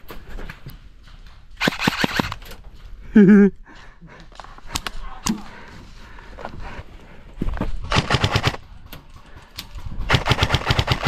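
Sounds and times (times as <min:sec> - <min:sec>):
airsoft gun shots: 0:01.6 - 0:02.4.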